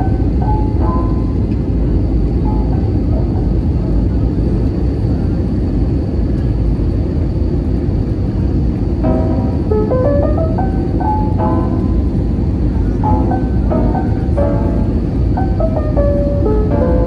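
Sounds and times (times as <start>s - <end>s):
music: 0.0s - 3.8s, 9.0s - 17.0s
jet engine and airflow rumble: 0.0s - 17.0s.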